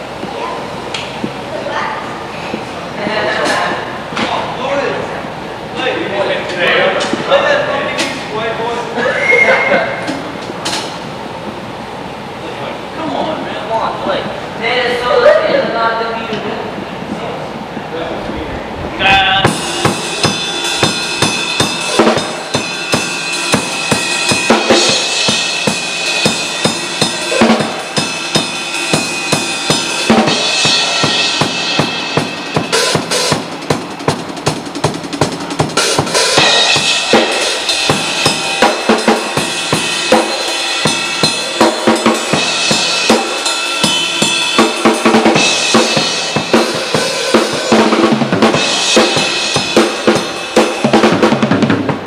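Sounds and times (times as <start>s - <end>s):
drum kit playing fast beat: 19.4s - 52.0s.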